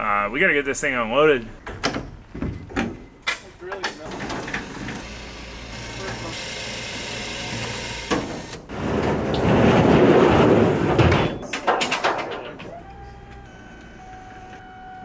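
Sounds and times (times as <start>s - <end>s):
motor whine: 4.6s - 8.7s, 12.7s - 15.0s
loud rushing scrape: 8.7s - 11.0s.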